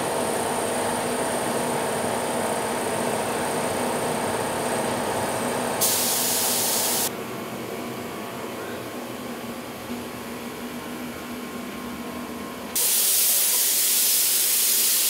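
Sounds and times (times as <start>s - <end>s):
workshop machinery drone: 0.0s - 15.0s
paint spray gun hissing: 5.8s - 7.1s, 12.8s - 15.0s.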